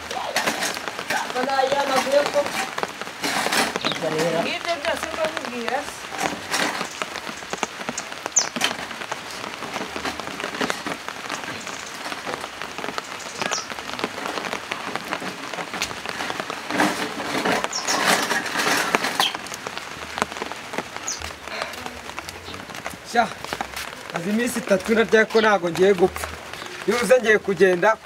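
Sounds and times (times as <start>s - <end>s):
sharp water drips: 0.0s - 10.0s
rain on paving and roofs: 0.0s - 28.0s.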